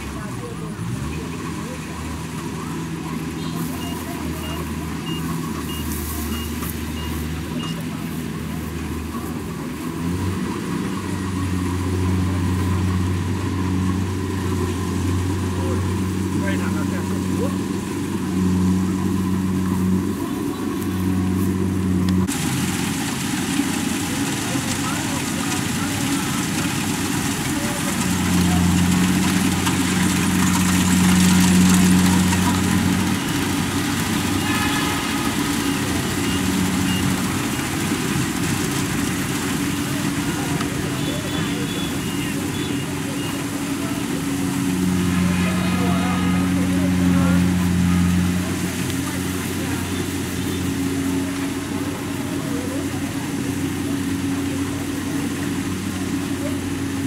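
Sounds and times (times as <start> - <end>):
combine harvester diesel engine: 0.0 - 57.0
machinery clattering: 18.9 - 57.0.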